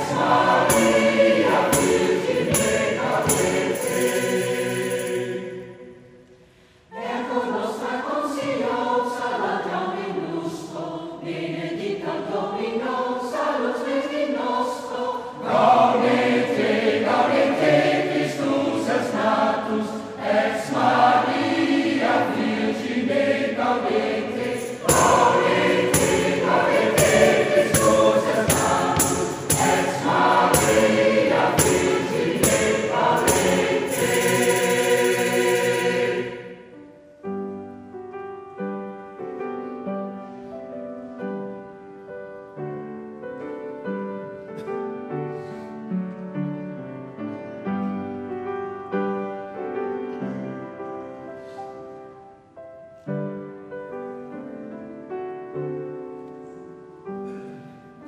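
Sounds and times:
mixed choir singing in harmony: 0:00.0 - 0:36.9.

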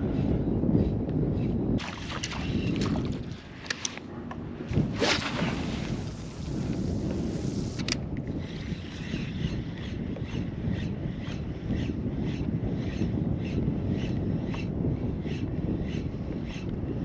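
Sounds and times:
wind on microphone: 0:00.0 - 0:17.0
water lapping at kayak: 0:01.8 - 0:07.7
fishing rod cast swish: 0:04.8 - 0:06.0.

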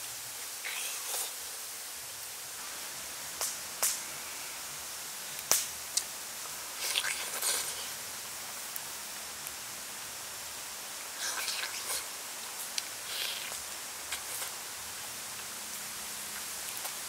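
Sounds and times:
steady high hiss: 0:00.0 - 0:17.0
chewing noises: 0:06.8 - 0:08.0, 0:11.2 - 0:14.6.

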